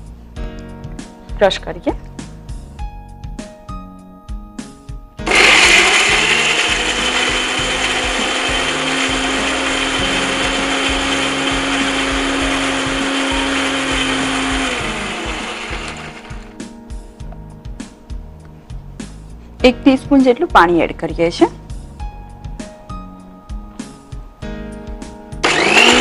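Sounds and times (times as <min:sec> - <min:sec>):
electric mixer grinder whining: 0:05.2 - 0:16.6, 0:25.4 - 0:26.0.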